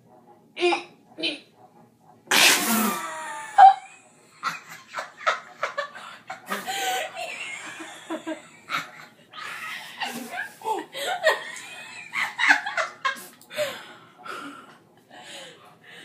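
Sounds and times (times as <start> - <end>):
girl laughing: 2.9 - 13.3.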